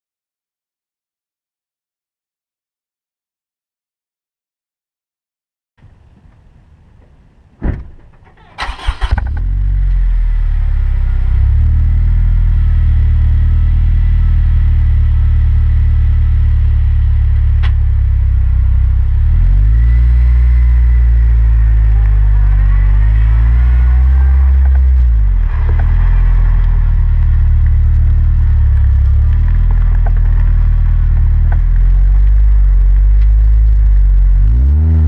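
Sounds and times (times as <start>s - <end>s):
car engine cranking and idling: 5.8s - 35.0s
thump: 7.6s - 8.4s.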